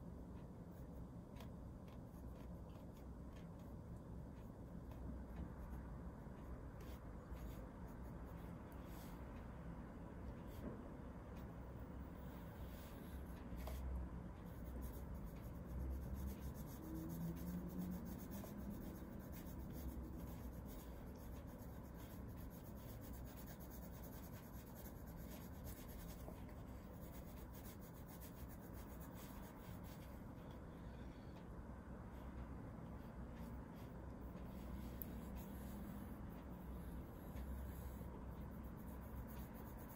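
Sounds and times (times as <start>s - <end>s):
pencil scratching on paper: 6.4s - 9.2s, 12.2s - 30.6s, 33.0s - 39.9s.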